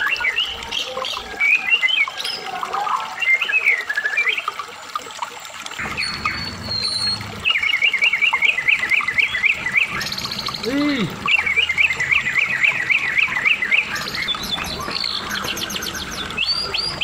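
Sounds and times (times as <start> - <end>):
songbird warbling and whistling: 5.8 - 17.0.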